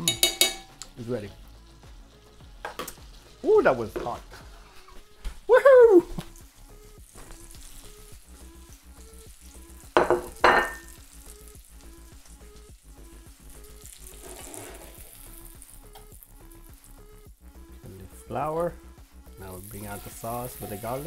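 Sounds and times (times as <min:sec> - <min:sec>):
background music with steady beat: 0:00.0 - 0:21.0
food sizzling in a frying pan: 0:00.0 - 0:21.0
plate knocking on wooden counter: 0:10.0 - 0:10.8.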